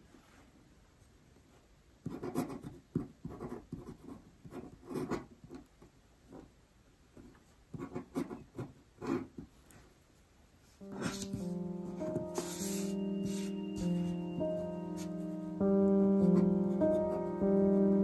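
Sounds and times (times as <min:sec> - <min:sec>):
pen nib scratching on paper: 0:02.1 - 0:05.7, 0:07.7 - 0:09.5.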